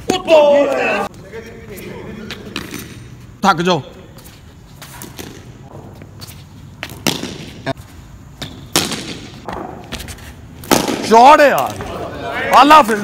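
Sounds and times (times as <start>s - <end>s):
cricket ball knocking off hard surfaces: 6.8s - 7.6s, 8.4s - 10.0s, 10.6s - 11.9s.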